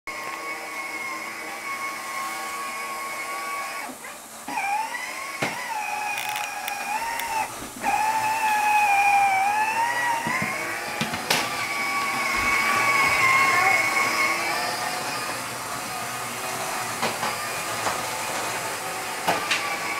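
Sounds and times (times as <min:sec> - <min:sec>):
toy electric motor whining: 0:02.3 - 0:15.6.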